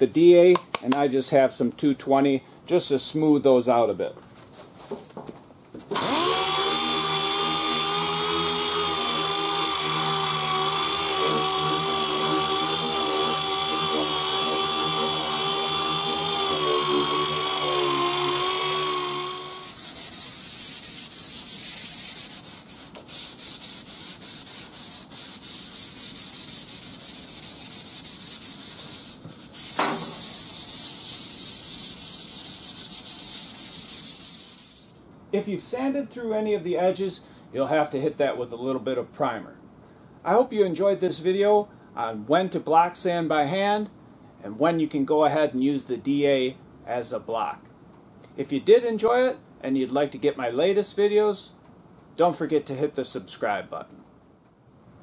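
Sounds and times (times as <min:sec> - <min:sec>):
pneumatic sander whining: 0:05.9 - 0:28.2
sandpaper rubbed by hand: 0:19.3 - 0:35.0.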